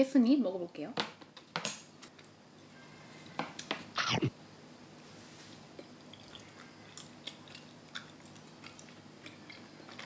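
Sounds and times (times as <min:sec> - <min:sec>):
wet mouth clicks: 0:04.0 - 0:04.3
chewing soft rice cake: 0:05.9 - 0:10.0.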